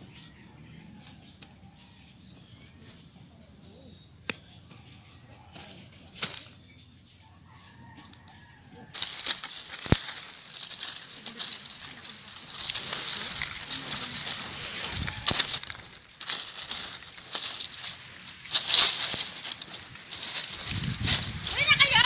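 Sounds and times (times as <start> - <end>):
rustling leaves and scraping soil: 0.0 - 22.0.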